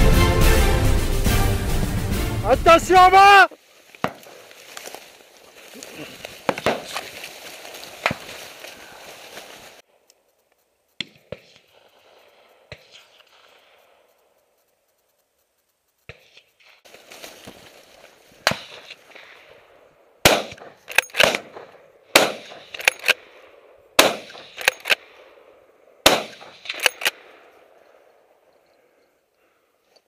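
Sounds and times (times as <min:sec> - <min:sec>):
soft rustling: 0:03.6 - 0:11.0, 0:12.9 - 0:19.2
rifle shots: 0:06.5 - 0:07.1, 0:20.2 - 0:23.4, 0:24.0 - 0:25.3, 0:26.0 - 0:27.6.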